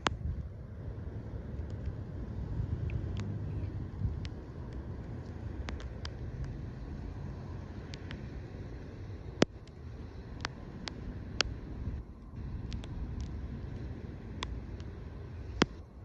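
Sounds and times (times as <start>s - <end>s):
steady low rumble: 0.0s - 16.0s
swan bills snapping and clicking: 4.2s - 6.6s.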